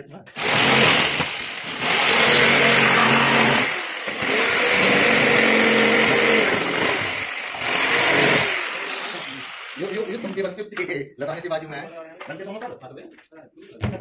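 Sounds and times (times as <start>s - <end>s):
electric jigsaw cutting board: 0.3s - 10.6s.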